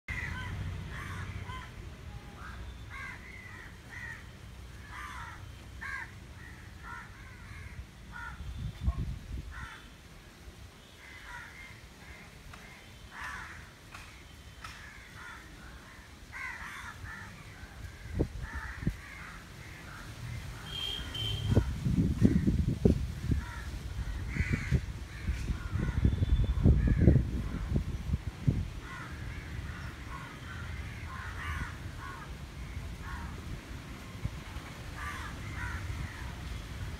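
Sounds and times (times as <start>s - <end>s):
crows cawing: 0.1s - 1.7s, 2.4s - 8.4s, 9.5s - 9.9s, 11.0s - 13.8s, 14.7s - 21.3s, 23.4s - 26.1s, 28.8s - 33.4s, 35.0s - 36.3s.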